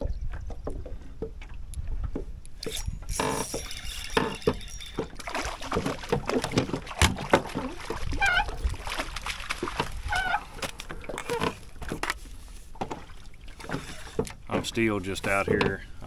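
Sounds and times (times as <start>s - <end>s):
fishing gear clattering: 2.5s - 7.8s.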